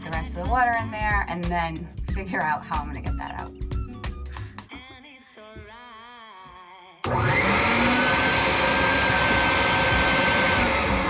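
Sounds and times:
shop vacuum motor whine: 0:07.0 - 0:11.0.

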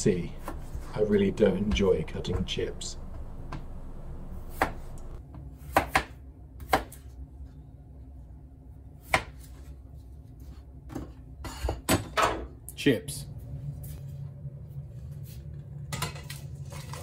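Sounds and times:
knife chopping on plastic board: 0:04.5 - 0:05.0, 0:05.6 - 0:07.0.

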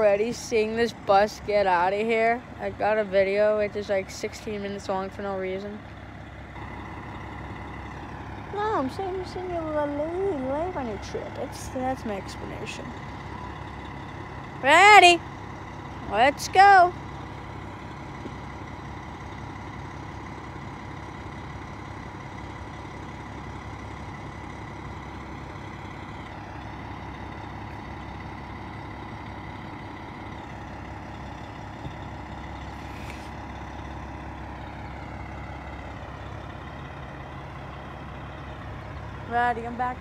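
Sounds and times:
diesel engine idling: 0:00.0 - 0:40.0.

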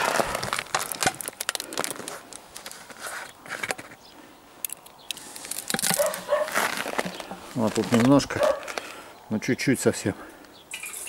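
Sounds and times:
handling plastic bottle: 0:00.0 - 0:04.0, 0:04.7 - 0:09.0
bottle screw cap crackling clicks: 0:04.6 - 0:06.3.

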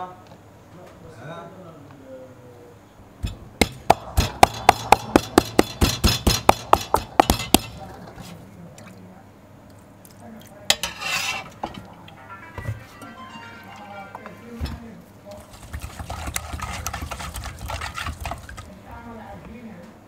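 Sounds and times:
pestle pounding in metal bowl: 0:03.2 - 0:08.3, 0:15.4 - 0:18.7
pestle scraping in bowl: 0:03.2 - 0:08.4, 0:10.7 - 0:11.8, 0:15.3 - 0:18.7.

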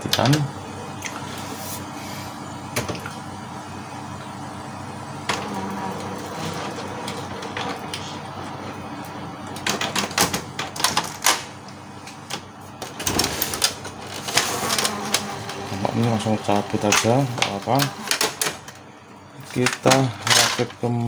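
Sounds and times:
printer mechanism humming: 0:00.0 - 0:21.0
printer clicks and clacks: 0:12.3 - 0:18.8.

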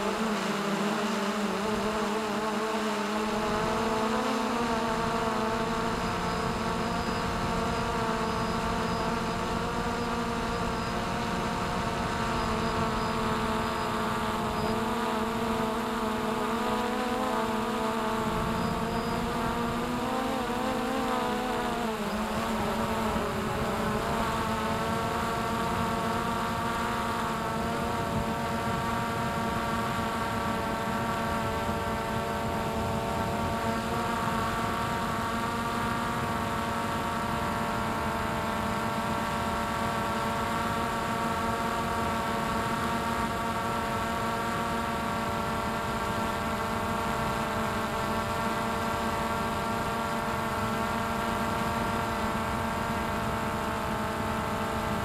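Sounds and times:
drone propellers buzzing: 0:00.0 - 0:55.0.

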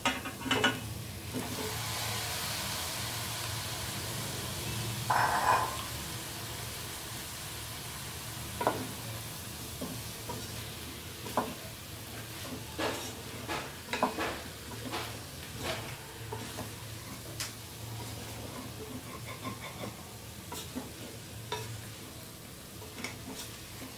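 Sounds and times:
light sizzle: 0:00.0 - 0:23.9
spatula scraping a metal pot: 0:18.0 - 0:21.0, 0:23.0 - 0:23.9.

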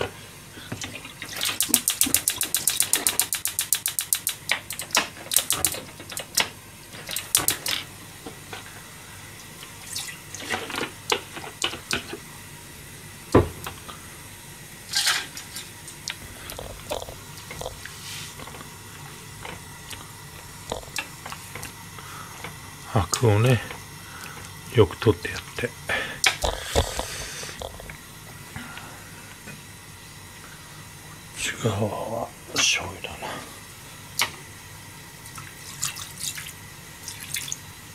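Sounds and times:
drips: 0:09.4 - 0:12.0, 0:35.2 - 0:37.6.

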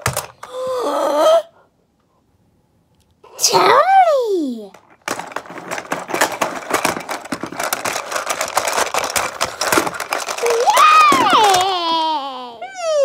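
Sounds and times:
plastic toy clicking rattle: 0:04.7 - 0:11.7.

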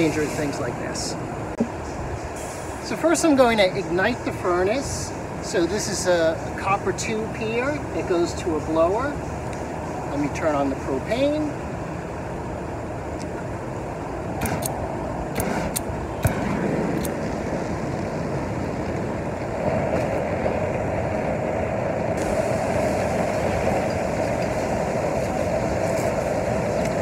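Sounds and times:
furnace blower and burner rushing: 0:14.0 - 0:27.0.

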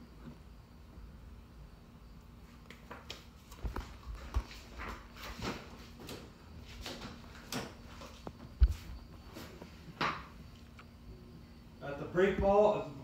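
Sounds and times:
faint steady hum: 0:00.0 - 0:13.0
flip-flop footsteps: 0:02.5 - 0:10.3.

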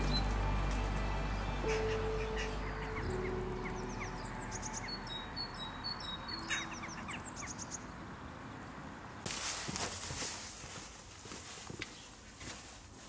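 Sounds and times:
background music: 0:00.0 - 0:07.5
small birds chirping and singing: 0:00.0 - 0:08.6.

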